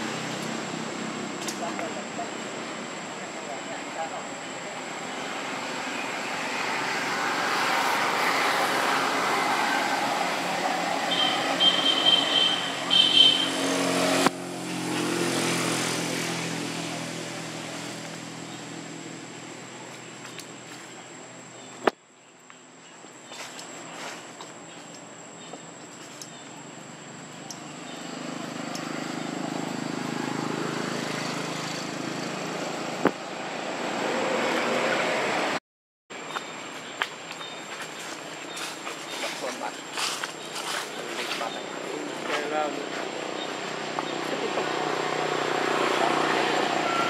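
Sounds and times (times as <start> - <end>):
engine running: 38.0 - 47.0.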